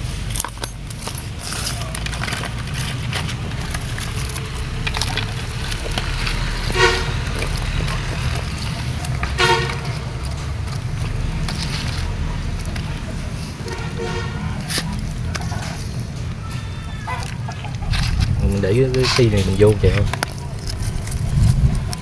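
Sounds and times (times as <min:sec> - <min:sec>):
low traffic rumble: 0:00.0 - 0:22.0
vehicle horn toots: 0:06.5 - 0:07.6, 0:09.2 - 0:10.4, 0:12.9 - 0:14.9.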